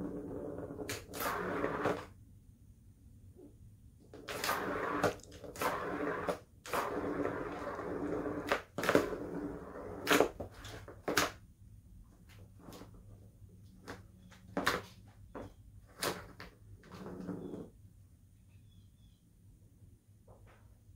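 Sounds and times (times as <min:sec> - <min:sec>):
cat scratching cardboard: 0:00.0 - 0:02.1, 0:04.1 - 0:11.4.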